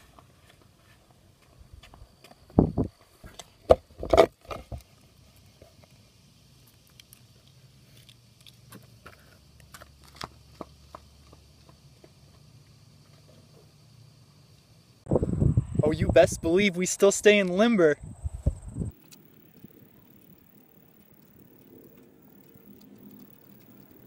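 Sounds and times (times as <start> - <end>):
faint ticks: 19.0 - 24.0.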